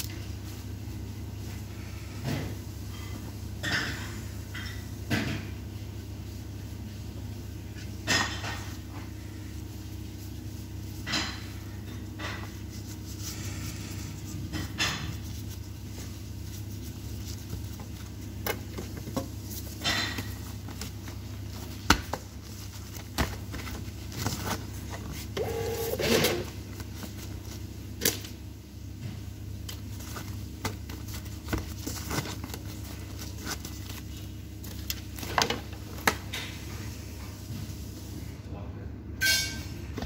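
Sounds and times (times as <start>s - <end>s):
kitchen equipment humming: 6.8s - 37.9s.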